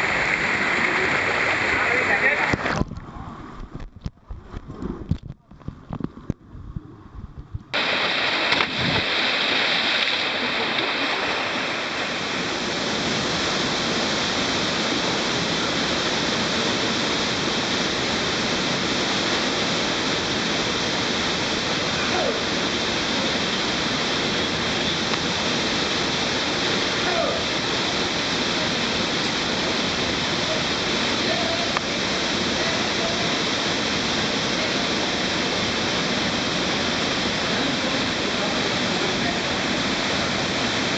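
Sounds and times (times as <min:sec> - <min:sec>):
white water rushing over rocks: 0:00.0 - 0:02.8, 0:07.8 - 0:40.9.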